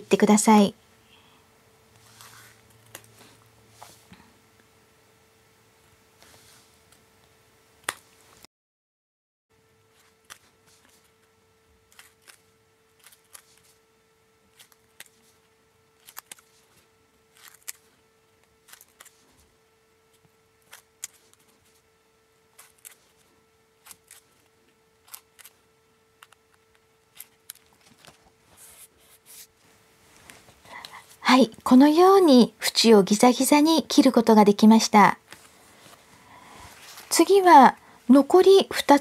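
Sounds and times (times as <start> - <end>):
scissors snipping paper: 9.9 - 11.3, 11.9 - 13.8, 14.5 - 15.4, 16.0 - 19.4, 20.2 - 21.8, 22.5 - 28.2.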